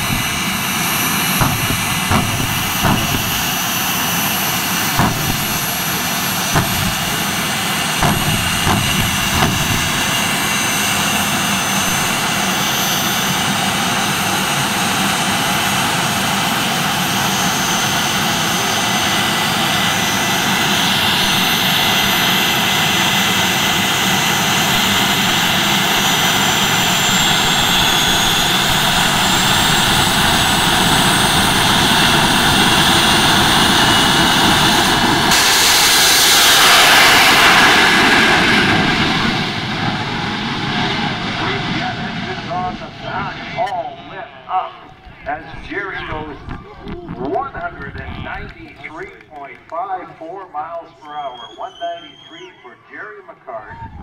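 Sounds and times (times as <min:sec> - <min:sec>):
turbine engine whine and exhaust: 0:00.0 - 0:54.0
sharp pops: 0:01.4 - 0:03.6, 0:05.0 - 0:05.8, 0:06.5 - 0:07.4, 0:08.0 - 0:10.9.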